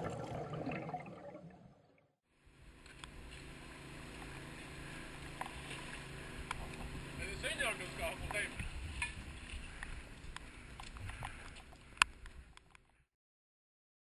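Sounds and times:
muffled underwater water noise: 0:00.0 - 0:02.0, 0:02.6 - 0:12.6
low hum: 0:00.0 - 0:12.6
faint clicks: 0:09.8 - 0:13.0.

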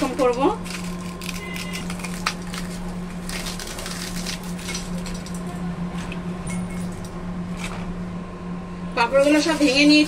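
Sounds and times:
crisp wafers cracking by hand: 0:00.2 - 0:05.5.

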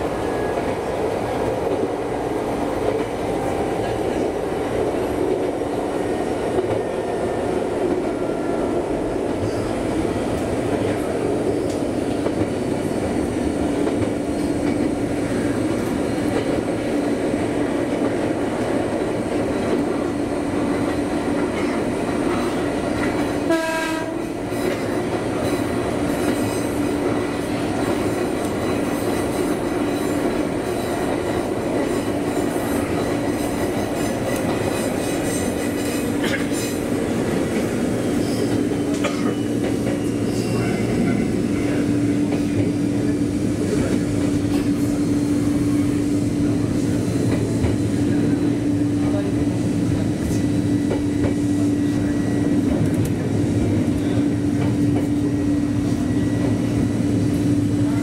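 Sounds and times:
train horn toot: 0:23.4 - 0:24.4.

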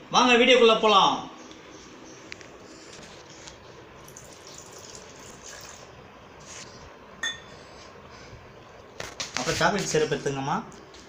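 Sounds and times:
milk pouring into jar: 0:04.0 - 0:06.0.

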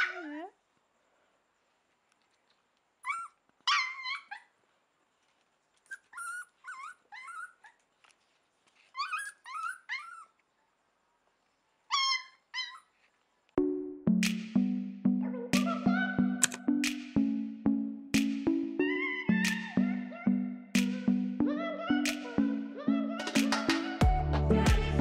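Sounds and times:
puppy yipping and whimpering: 0:00.0 - 0:00.6, 0:03.0 - 0:04.5, 0:05.8 - 0:07.9, 0:08.8 - 0:10.5, 0:11.9 - 0:13.1.

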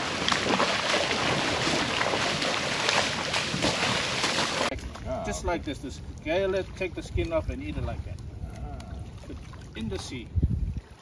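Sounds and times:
fish thrashing in net: 0:00.0 - 0:04.8
water splashing and sloshing: 0:00.0 - 0:11.0.

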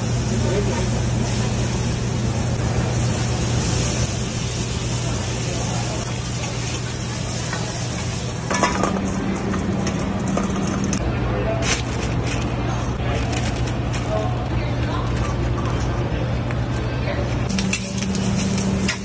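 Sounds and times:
shrimp sizzling on a griddle: 0:00.0 - 0:08.8, 0:17.5 - 0:19.0.

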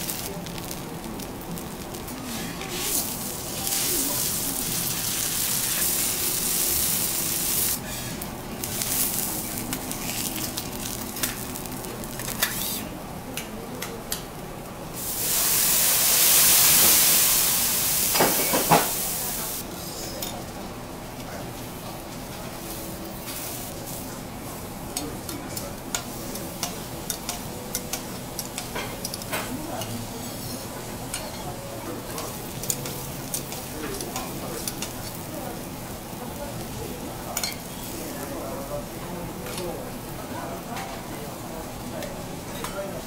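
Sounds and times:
steak sizzling on griddle: 0:00.0 - 0:12.8, 0:15.0 - 0:19.6, 0:25.9 - 0:40.7
flambe flame rush: 0:00.0 - 0:12.9, 0:14.9 - 0:19.7.

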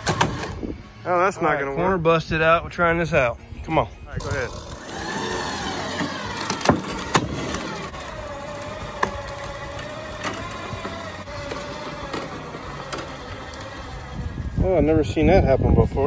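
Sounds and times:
electric winch motor whining: 0:00.0 - 0:01.2, 0:04.2 - 0:15.3
rigging knocks: 0:05.9 - 0:07.9.

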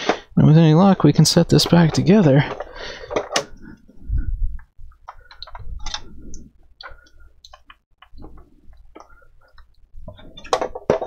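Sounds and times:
plastic case cover being handled: 0:10.0 - 0:11.0.

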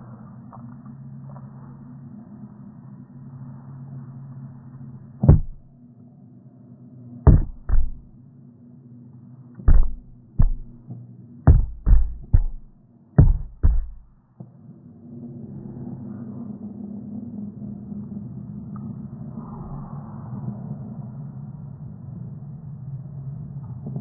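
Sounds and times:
sharp knocks: 0:05.2 - 0:05.7, 0:07.3 - 0:08.1, 0:09.7 - 0:10.8, 0:11.5 - 0:14.2
low hum: 0:05.3 - 0:05.7, 0:07.3 - 0:08.1, 0:09.7 - 0:10.8, 0:11.5 - 0:14.1.

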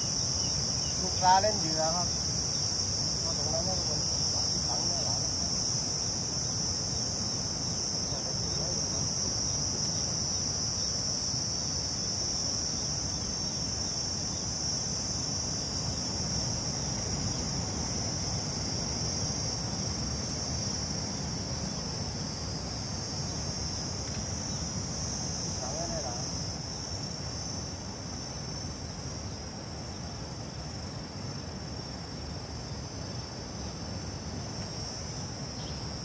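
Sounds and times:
insect chorus high drone: 0:00.0 - 0:36.0.

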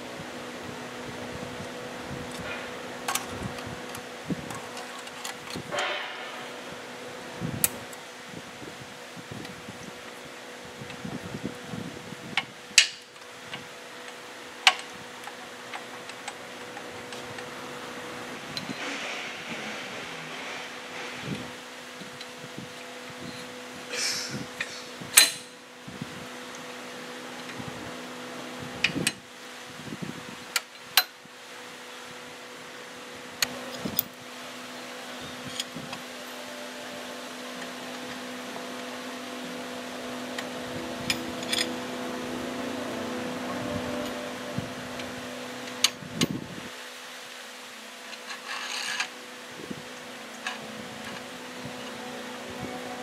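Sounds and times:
steady background hum: 0:00.0 - 0:53.0
metal parts clinking: 0:48.2 - 0:49.1.

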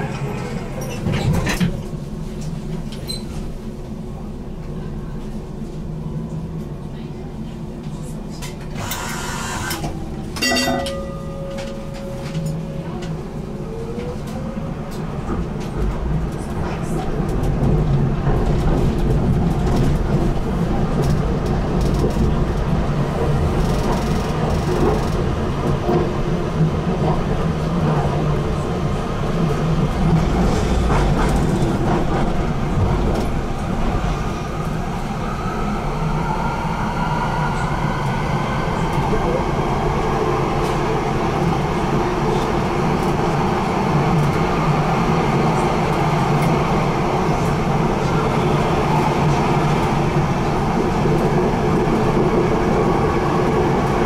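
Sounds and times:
tram rumble and wheel noise: 0:00.0 - 0:54.0
short ringing tone: 0:10.4 - 0:12.7.

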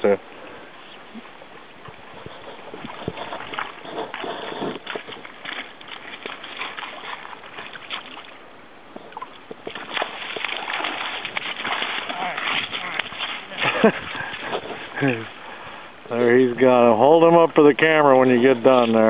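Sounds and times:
river water splashing: 0:00.0 - 0:19.0
wading footsteps in water: 0:00.2 - 0:16.1
fish thrashing at surface: 0:02.2 - 0:08.4, 0:09.6 - 0:15.4.

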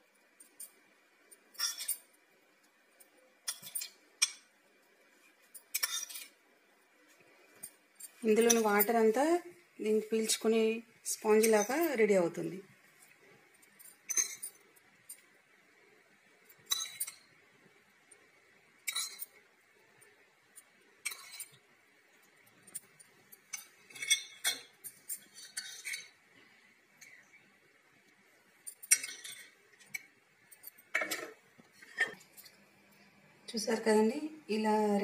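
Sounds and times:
spoon scraping: 0:00.4 - 0:02.1, 0:03.4 - 0:04.5, 0:05.2 - 0:06.4, 0:07.6 - 0:09.2, 0:13.0 - 0:15.3, 0:16.5 - 0:17.3, 0:18.8 - 0:19.4, 0:21.0 - 0:21.7, 0:22.5 - 0:26.2, 0:28.6 - 0:32.6
metal spoon clinking on plate: 0:01.5 - 0:02.1, 0:03.4 - 0:04.5, 0:05.6 - 0:06.4, 0:08.0 - 0:08.9, 0:13.8 - 0:15.2, 0:16.5 - 0:17.3, 0:18.8 - 0:19.4, 0:21.0 - 0:21.6, 0:22.7 - 0:26.2, 0:28.6 - 0:32.5.

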